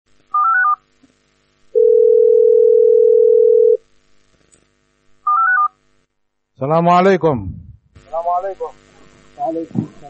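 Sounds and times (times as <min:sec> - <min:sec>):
telephone ringing tone: 0:01.8 - 0:03.8.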